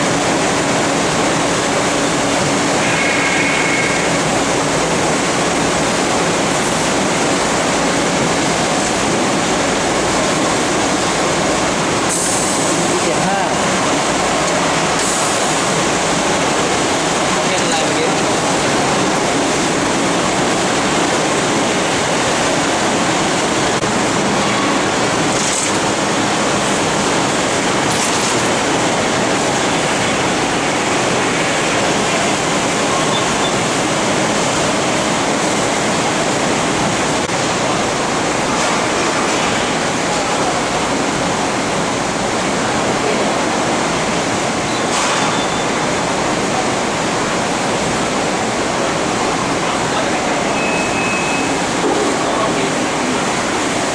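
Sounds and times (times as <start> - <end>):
factory machinery hiss: 0.2 - 27.9.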